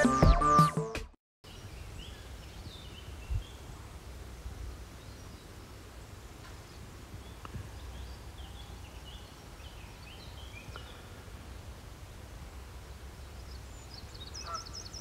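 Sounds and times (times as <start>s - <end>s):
wind rumbling on microphone: 1.6s - 15.0s
birds chirping: 4.6s - 11.8s, 13.1s - 15.0s.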